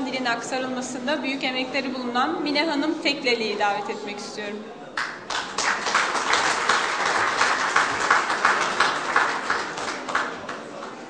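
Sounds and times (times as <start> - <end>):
audience applauding: 5.0 - 11.0.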